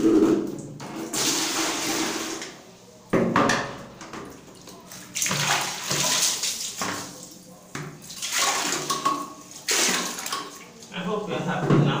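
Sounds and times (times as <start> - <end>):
toilet brush scrubbing in water: 4.4 - 7.4, 8.0 - 10.9.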